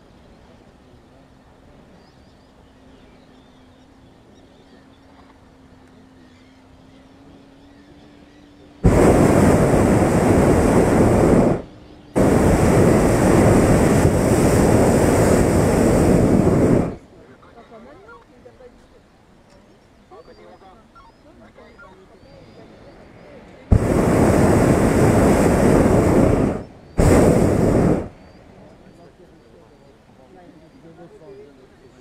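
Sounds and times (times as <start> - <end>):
propane burner roaring: 8.8 - 17.0, 23.7 - 28.4.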